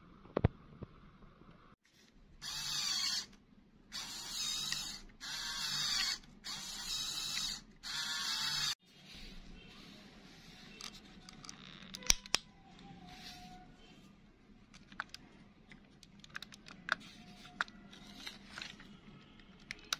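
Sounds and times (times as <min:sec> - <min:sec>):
toy motor and gears whirring: 0:02.4 - 0:08.8.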